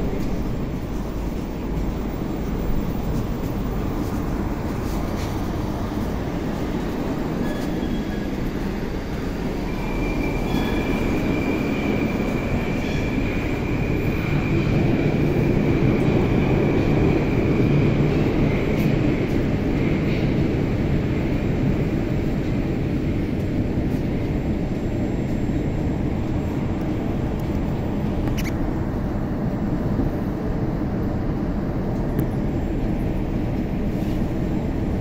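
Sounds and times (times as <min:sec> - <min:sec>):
metro train rumble: 0:00.0 - 0:35.0.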